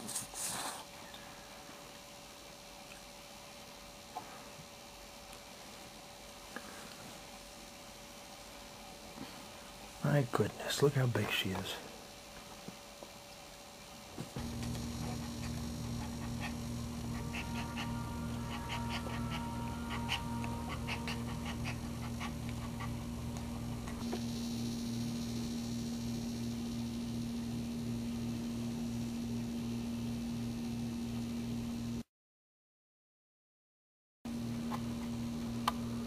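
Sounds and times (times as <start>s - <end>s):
steady hum: 0.8s - 32.1s, 34.3s - 36.0s
dog panting fast: 15.0s - 24.0s.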